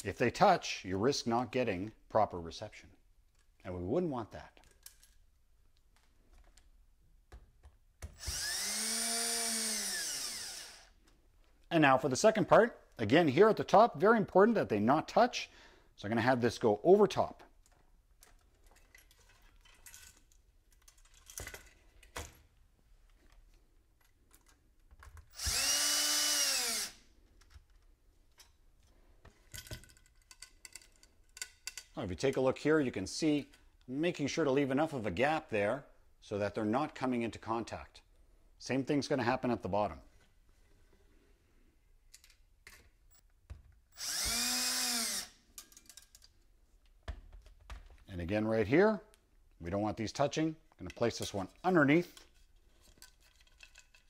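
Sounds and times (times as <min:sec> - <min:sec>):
cordless drill motor whine: 0:08.1 - 0:10.9, 0:25.3 - 0:27.0, 0:43.9 - 0:45.3.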